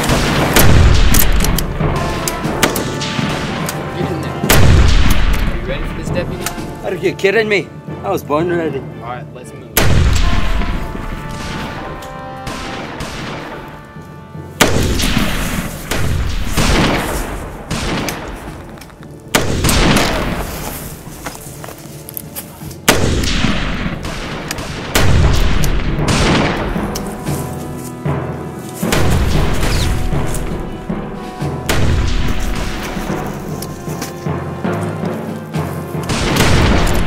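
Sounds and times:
echoing gunshots: 0.0s - 5.9s, 9.8s - 13.8s, 14.6s - 18.6s, 19.3s - 21.0s, 22.9s - 27.4s, 28.8s - 33.9s, 36.1s - 37.0s
background music: 0.0s - 37.0s.

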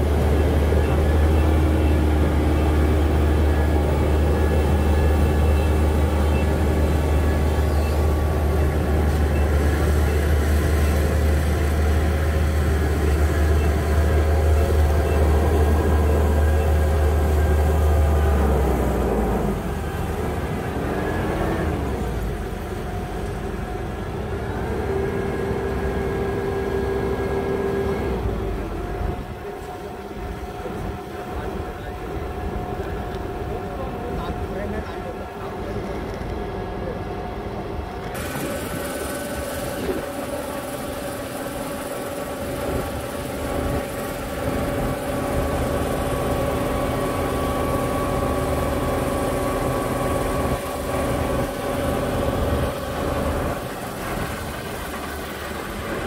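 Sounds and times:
diesel engine drone: 0.0s - 56.0s
steady high whine: 27.9s - 56.0s.

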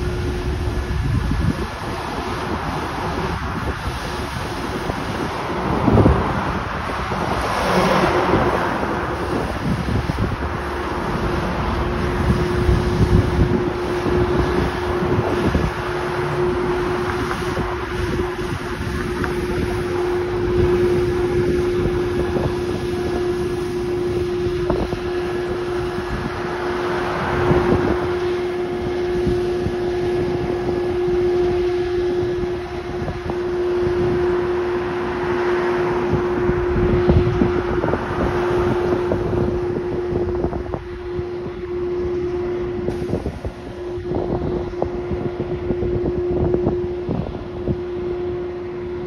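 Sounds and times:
street sweeper truck running: 0.0s - 49.0s.

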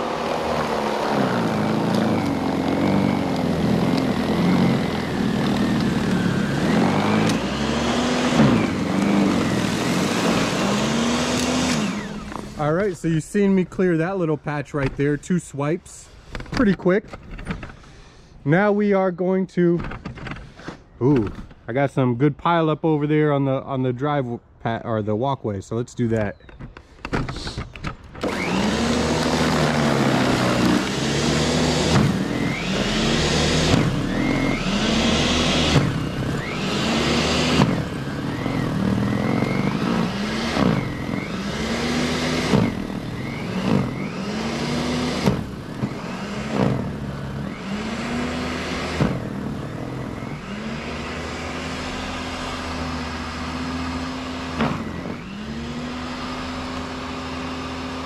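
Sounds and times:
electric snow blower running: 0.0s - 13.5s, 28.2s - 58.0s
snow being churned and thrown: 28.4s - 49.2s.

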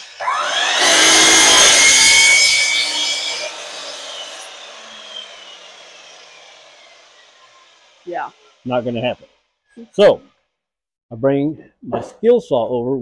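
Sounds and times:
miter saw cutting plywood: 0.0s - 9.4s
saw motor winding down: 0.0s - 10.2s.

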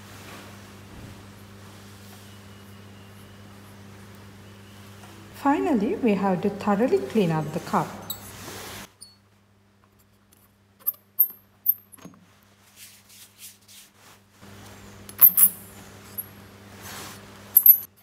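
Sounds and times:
tissue rubbing on metal: 12.5s - 14.3s.

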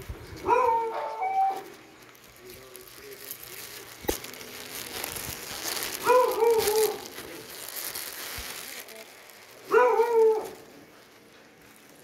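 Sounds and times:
dog whining: 0.4s - 1.8s, 9.7s - 10.7s.

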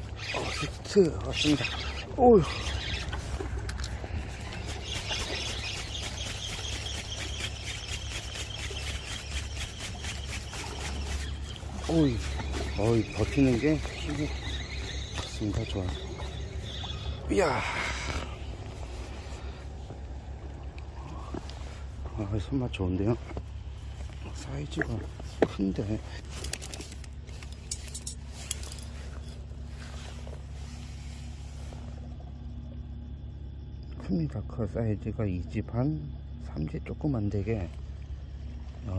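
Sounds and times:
fishing reel ticking: 0.0s - 17.3s
low hum: 0.0s - 38.9s
low rumble: 10.6s - 25.4s.

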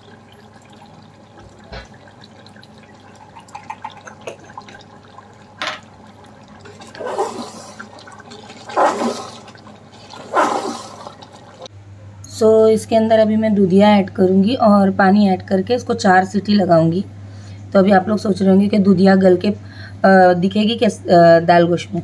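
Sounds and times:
gravy bubbling and crackling: 0.0s - 11.7s.

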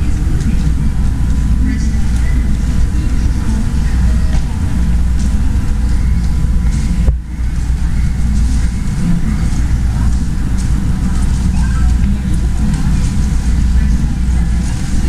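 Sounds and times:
airport terminal hall rumble: 0.0s - 15.0s.

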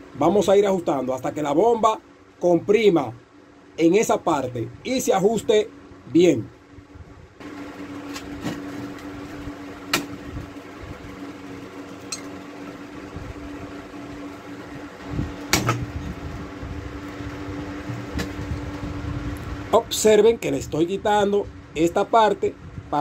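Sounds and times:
sharp knocks: 15.5s - 15.9s.

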